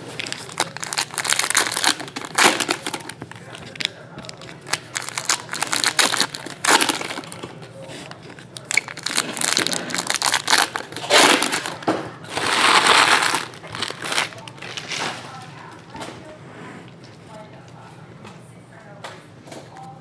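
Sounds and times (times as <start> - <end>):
foil wrappers crinkling: 0.0 - 16.0.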